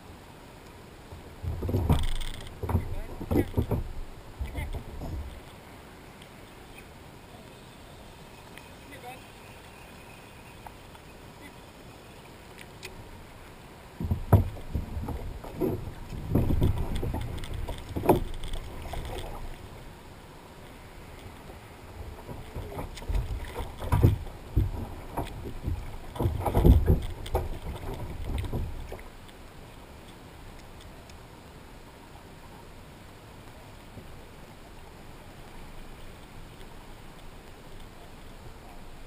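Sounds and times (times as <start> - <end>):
water splashing: 1.0 - 31.4
thumps against plastic kayak hull: 1.4 - 5.3, 14.0 - 18.6, 22.3 - 29.0.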